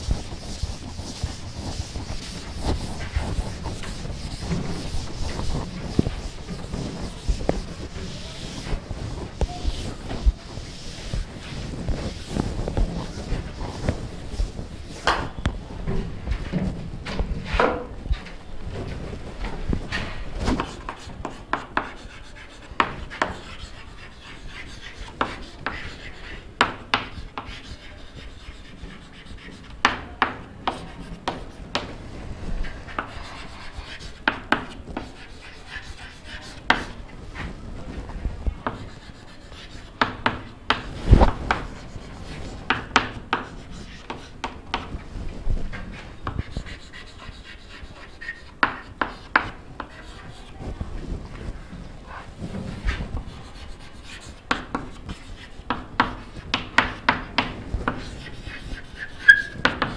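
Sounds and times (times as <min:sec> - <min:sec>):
chalk tapping on chalkboard: 0:00.0 - 0:15.6, 0:16.3 - 0:59.9
chalk scratching strokes: 0:00.0 - 0:59.9
loud knock on chalkboard: 0:15.0 - 0:15.4, 0:26.6 - 0:27.5.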